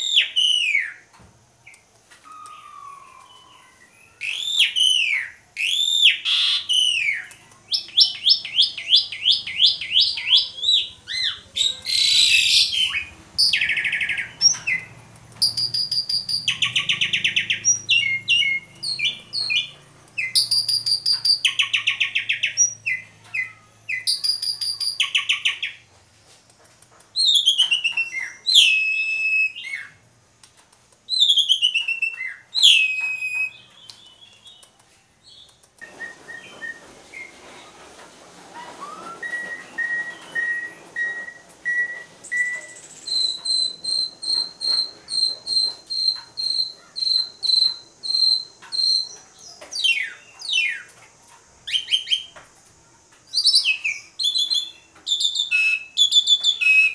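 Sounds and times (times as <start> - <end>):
starling singing varied song: 2.3 - 25.8, 38.6 - 51.0.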